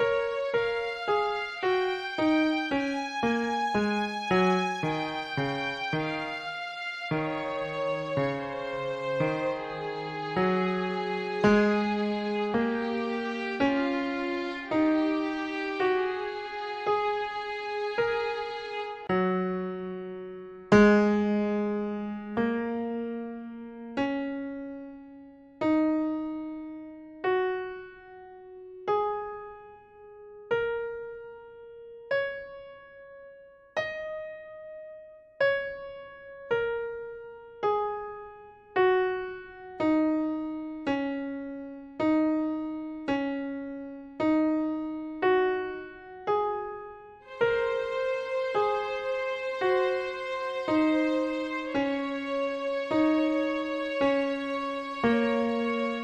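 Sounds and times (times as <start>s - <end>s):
slow solo piano melody: 0.0s - 56.0s.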